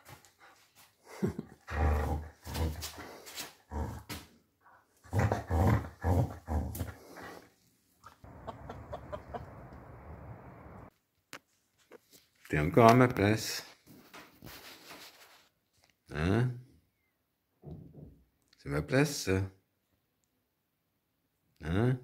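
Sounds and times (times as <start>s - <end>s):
dog growling playfully: 1.2s - 3.0s, 3.7s - 4.2s, 5.0s - 7.4s.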